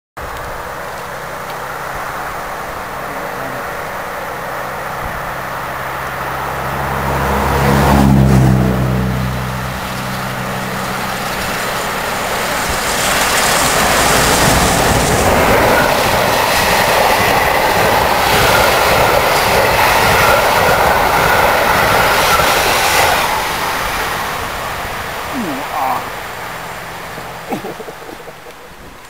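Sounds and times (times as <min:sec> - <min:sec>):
steam train passing: 0:00.2 - 0:29.0
wheels rolling on rails: 0:09.0 - 0:29.0.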